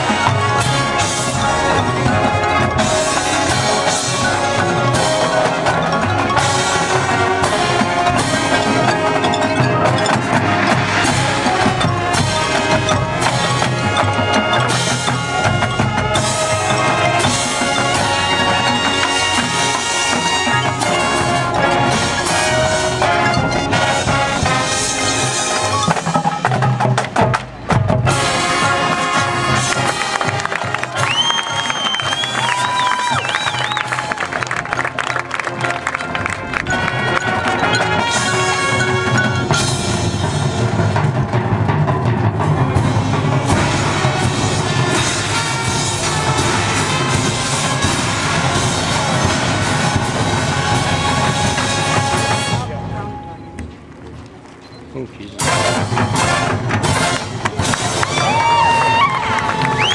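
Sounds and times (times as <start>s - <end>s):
mallet percussion: 0.0s - 53.4s
marching band playing: 0.0s - 59.9s.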